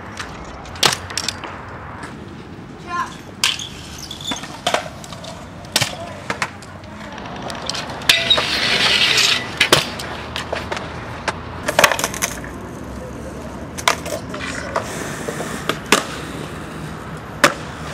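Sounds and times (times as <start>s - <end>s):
scooter decks clacking on ground: 0.0s - 16.4s
scooter wheels rolling on concrete: 0.0s - 17.9s
rough scraping rush: 2.0s - 17.9s.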